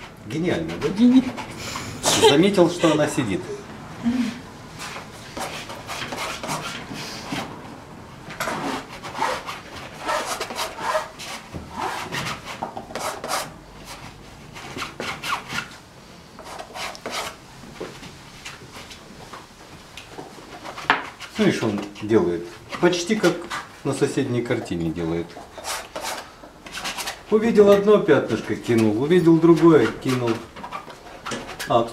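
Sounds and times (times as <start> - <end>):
palette knife scraping on canvas: 4.8 - 7.4, 8.4 - 14.0, 25.4 - 27.3, 29.3 - 31.7.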